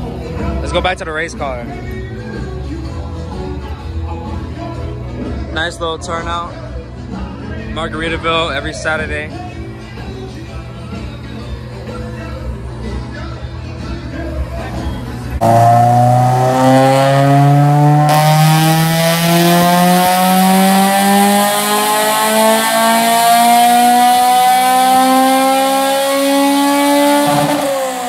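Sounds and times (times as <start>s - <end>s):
car engine revving at full throttle: 15.4s - 28.0s.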